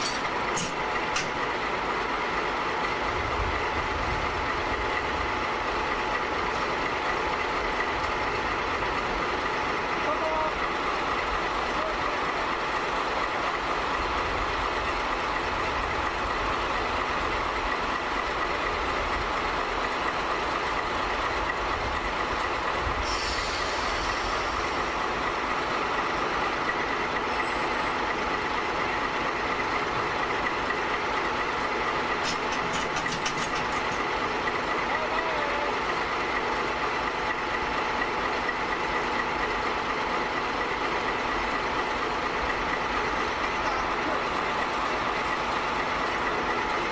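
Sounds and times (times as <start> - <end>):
diesel locomotive engine running: 0.0 - 46.9
air hiss: 23.0 - 24.8.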